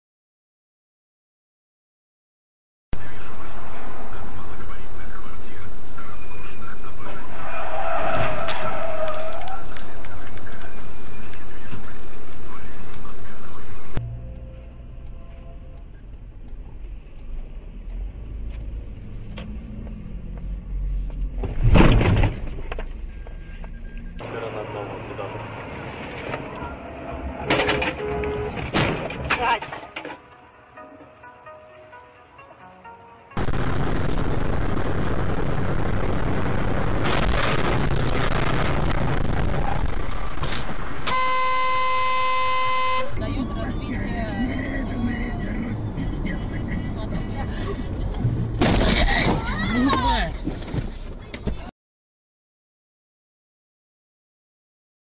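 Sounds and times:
car engine and road rumble: 0:03.0 - 0:51.7
car horn: 0:26.6 - 0:28.8, 0:41.1 - 0:43.2
loud sudden noise: 0:33.4 - 0:42.4.

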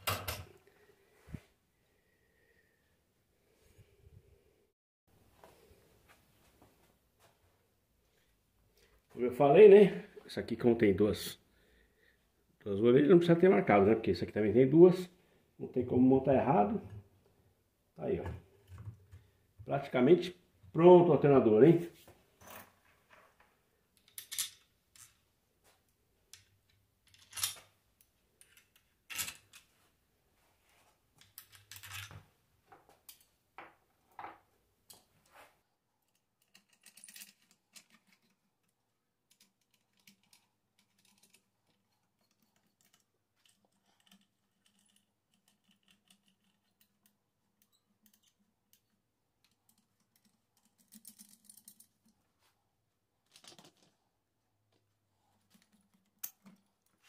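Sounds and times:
small metal parts clicking: 0:36.0 - 0:52.1.

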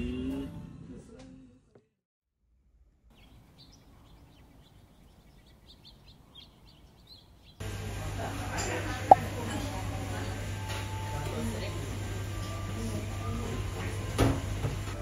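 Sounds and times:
small birds chirping: 0:02.9 - 0:07.6.

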